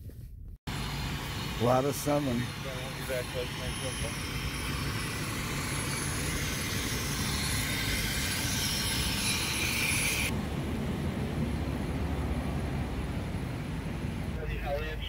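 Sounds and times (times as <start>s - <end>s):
hiss: 0.7s - 10.3s
fire engines idling: 0.7s - 15.0s.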